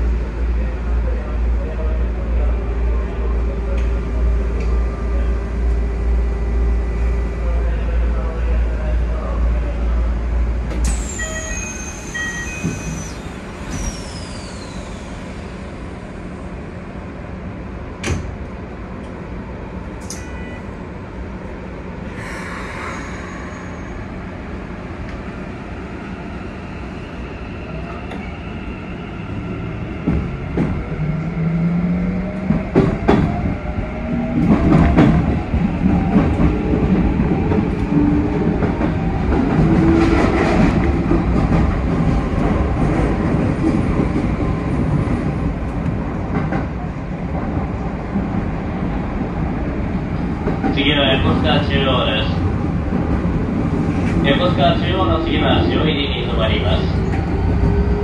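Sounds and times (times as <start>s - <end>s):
short hiss of air: 13.0s - 15.7s
click: 20.0s - 20.3s.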